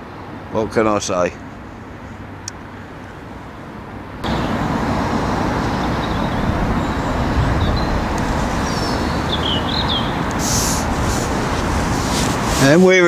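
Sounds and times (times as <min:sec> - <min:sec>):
road traffic rushing: 0:00.0 - 0:13.0
brief rustle: 0:10.3 - 0:13.0.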